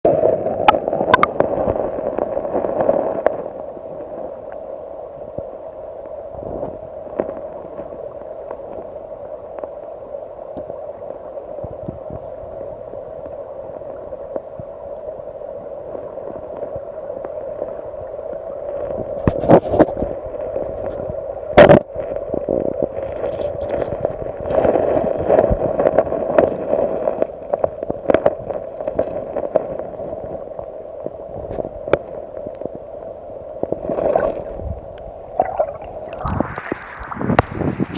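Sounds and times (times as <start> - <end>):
disturbed water bursts: 0.1 - 37.9
muffled underwater river rush: 0.1 - 37.9
sharp knocks underwater: 0.7 - 1.5, 35.4 - 37.6.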